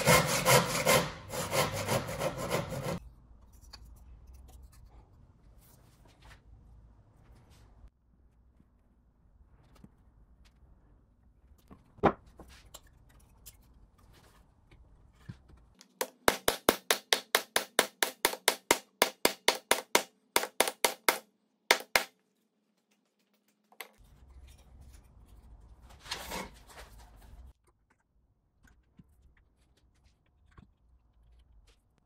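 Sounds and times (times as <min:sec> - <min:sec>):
mallet striking wood: 0:16.0 - 0:22.1.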